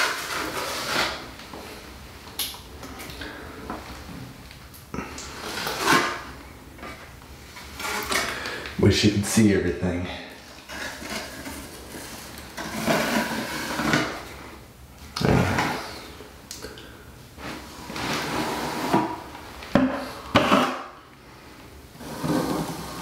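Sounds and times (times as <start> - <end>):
trowel scraping and spreading: 0.0 - 1.3, 5.3 - 6.3, 10.6 - 14.2, 17.4 - 19.2, 22.0 - 23.0.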